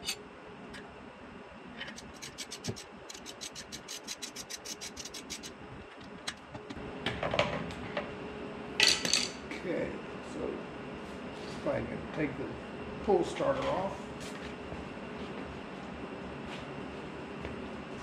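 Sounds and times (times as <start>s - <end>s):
ratchet clicking: 1.9s - 5.5s.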